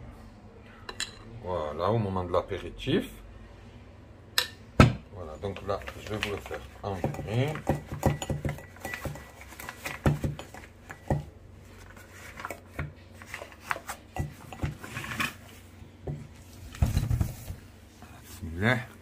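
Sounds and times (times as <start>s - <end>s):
piping bag rustling: 5.5s - 15.7s.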